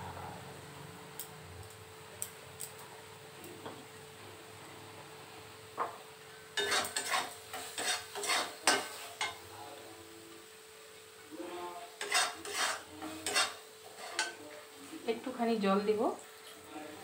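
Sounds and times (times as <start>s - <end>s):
metal spatula scraping a pan: 6.6s - 9.4s, 11.9s - 14.4s.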